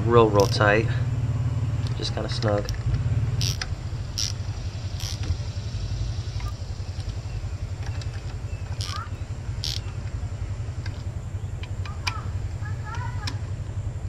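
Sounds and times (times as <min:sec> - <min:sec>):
low engine-like rumble: 0:00.0 - 0:14.0
wrench clicks: 0:00.4 - 0:00.7, 0:01.8 - 0:04.4, 0:05.0 - 0:05.3, 0:07.8 - 0:09.9.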